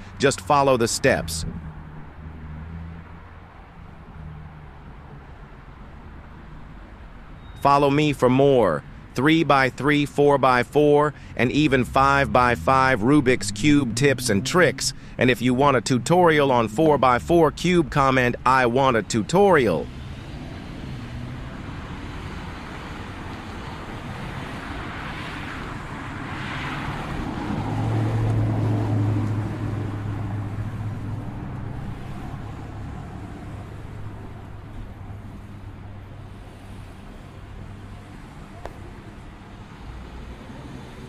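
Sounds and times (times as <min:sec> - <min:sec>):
traffic background rush: 0:00.0 - 0:41.0
vehicle engine and tyre noise: 0:00.0 - 0:41.0.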